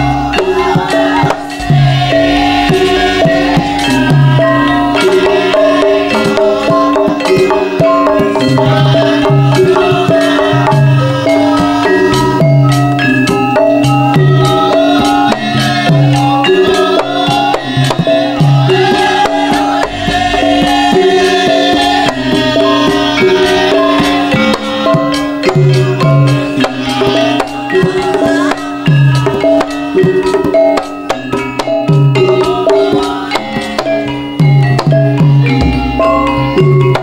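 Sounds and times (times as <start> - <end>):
metallophones playing melody: 0.0 - 37.0
deep hand drum strokes: 35.3 - 37.0.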